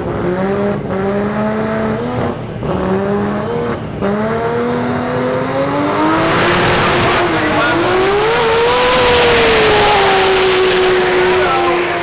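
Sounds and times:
race car engine revving: 0.0 - 12.0.

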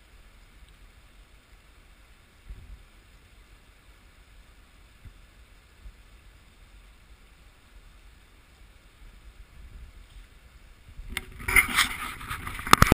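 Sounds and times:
low wind rumble: 0.0 - 12.9
camera handling noise: 11.1 - 12.9.

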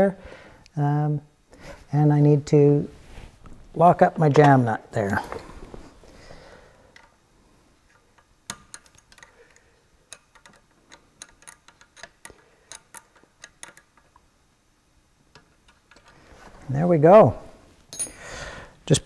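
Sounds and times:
wrench metallic clicks: 10.1 - 14.2.

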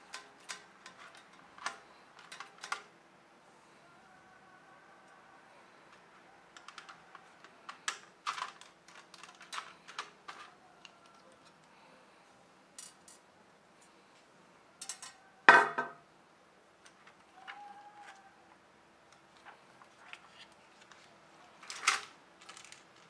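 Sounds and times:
screwdriver clicking on plastic: 0.0 - 2.9.

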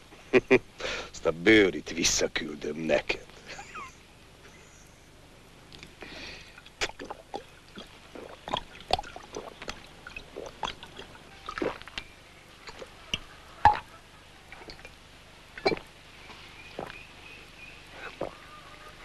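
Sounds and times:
man gulping liquid: 5.7 - 12.0, 12.6 - 12.9, 13.6 - 13.9, 14.5 - 15.0, 15.6 - 15.9, 18.0 - 18.4
liquid gurgling: 6.4 - 12.0, 15.6 - 15.9.

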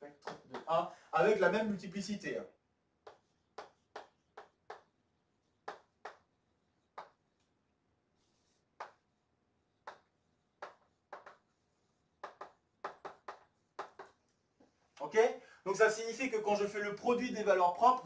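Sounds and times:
chalk tapping on chalkboard: 0.2 - 0.7, 3.0 - 5.0, 5.6 - 7.4, 8.4 - 9.1, 9.8 - 14.3.

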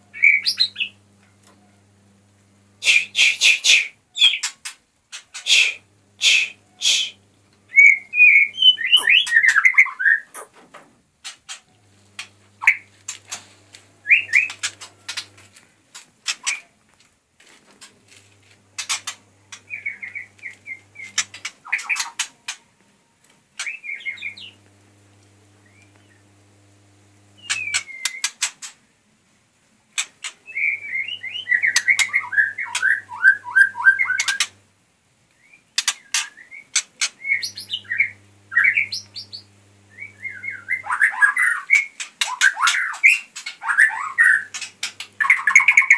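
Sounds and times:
songbirds calling: 0.0 - 2.0, 2.8 - 10.6, 11.2 - 15.5, 17.8 - 22.7, 23.5 - 28.8, 30.0 - 34.6, 35.3 - 45.9
sharp clicking bird chips: 8.3 - 10.6, 14.1 - 15.4, 27.4 - 28.8, 35.8 - 37.8, 41.4 - 45.9.

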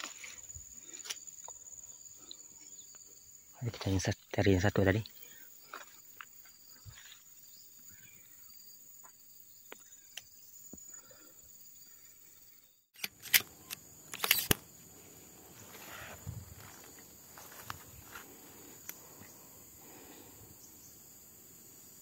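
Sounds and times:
high insect drone: 0.0 - 22.0
sharp clicks: 13.0 - 14.6
footsteps through undergrowth: 15.3 - 18.8.

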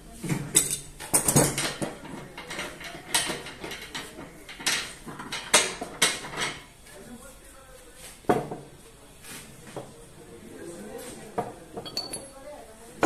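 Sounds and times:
metal tools clanking on vise: 11.8 - 12.4.

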